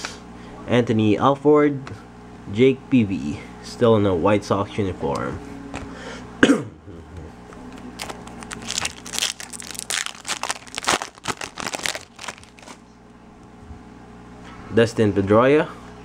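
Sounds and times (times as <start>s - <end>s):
foil wrapper tearing and crinkling: 8.0s - 12.8s.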